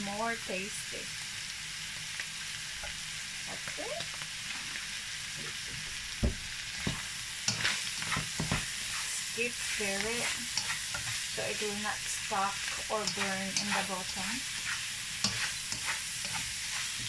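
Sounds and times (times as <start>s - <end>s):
meat and vegetables sizzling: 0.0s - 17.0s
spatula knocking and scraping pan: 6.8s - 8.8s, 9.9s - 11.8s, 12.4s - 17.0s.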